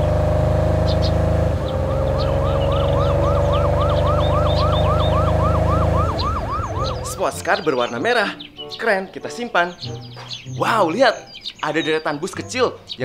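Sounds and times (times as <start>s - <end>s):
sports car engine running: 0.0s - 7.2s
police siren yelping: 0.8s - 7.2s.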